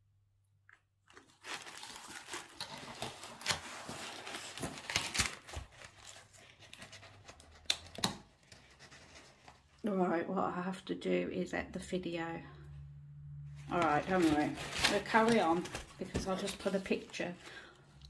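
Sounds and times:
paper and packaging rustling: 1.1s - 9.8s, 13.6s - 18.0s.

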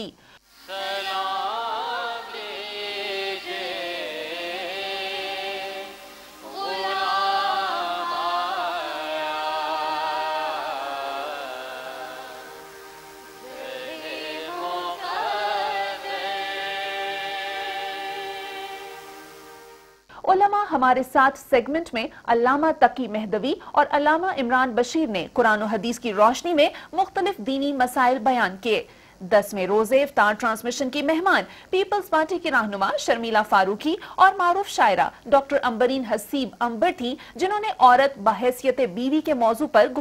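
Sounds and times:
woman singing devotional song: 0.7s - 12.7s, 13.4s - 19.2s.

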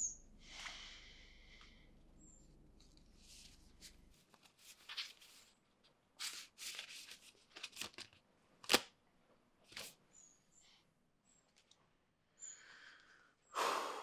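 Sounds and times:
index cards rustling: 2.8s - 5.6s, 6.2s - 8.9s
paper snap: 7.6s - 9.0s.

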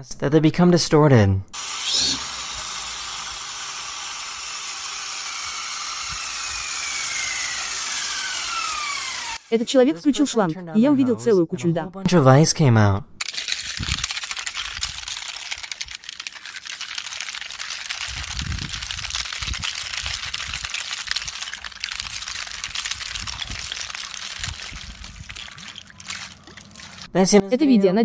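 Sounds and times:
ice rods clinking and crackling: 13.2s - 27.1s
water pushing from hose: 13.2s - 27.1s.

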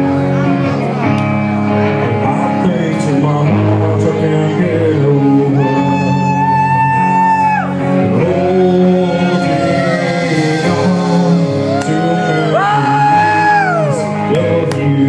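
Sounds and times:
electric guitar: 0.0s - 15.0s
person singing long notes: 3.1s - 15.0s.

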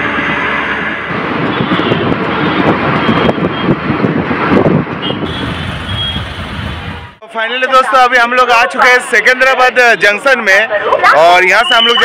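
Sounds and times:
road and wind noise: 0.0s - 11.8s
rickshaw engine running: 5.3s - 7.2s.

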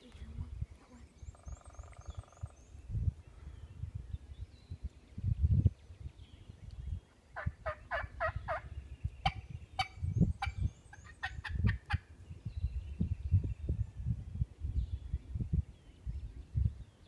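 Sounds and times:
turkey call yelps: 7.4s - 8.6s
turkey call cutts and clucks: 7.4s - 12.1s.

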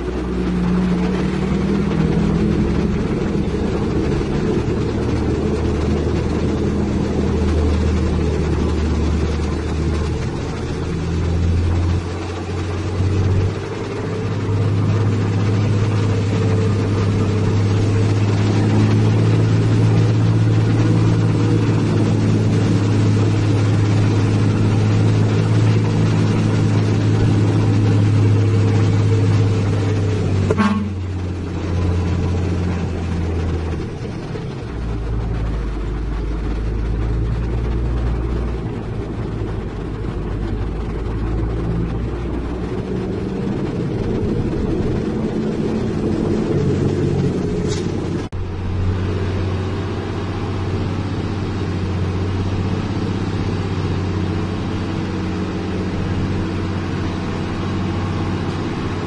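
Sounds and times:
truck diesel engine droning: 0.0s - 59.0s
horn toot: 30.5s - 31.1s.

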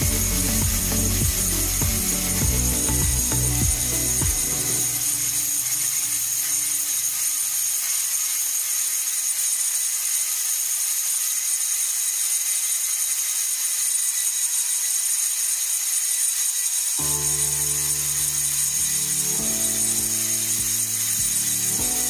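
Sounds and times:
angle grinder grinding wood: 0.0s - 22.0s.

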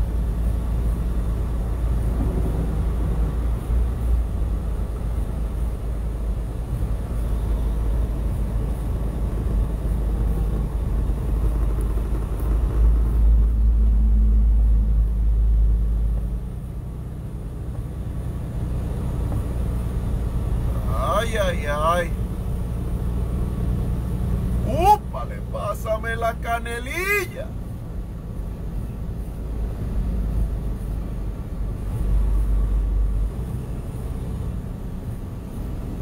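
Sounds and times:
truck engine and tyres rumbling: 0.0s - 36.0s.

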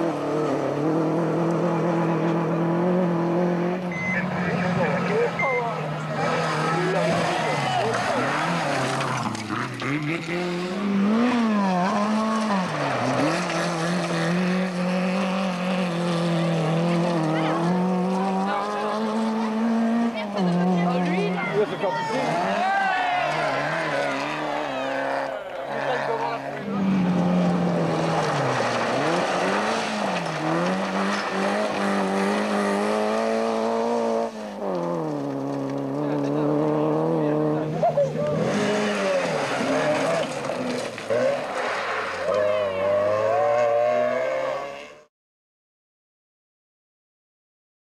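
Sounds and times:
rally car engine revving: 0.0s - 45.1s.

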